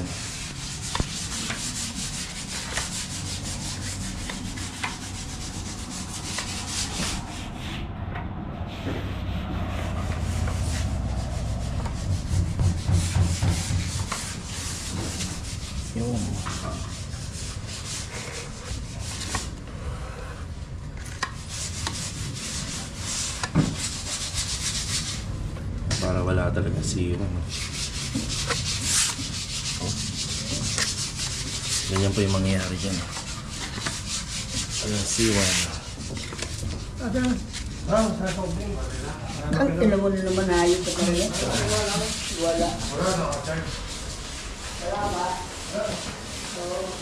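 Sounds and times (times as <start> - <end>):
sandpaper rubbing putty: 0.0 - 7.7, 27.5 - 39.3, 40.0 - 47.0.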